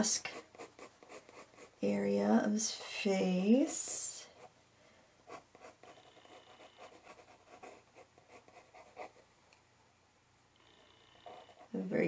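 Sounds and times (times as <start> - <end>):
pencil scratching on paper: 0.2 - 1.9, 5.3 - 9.2, 11.2 - 11.8.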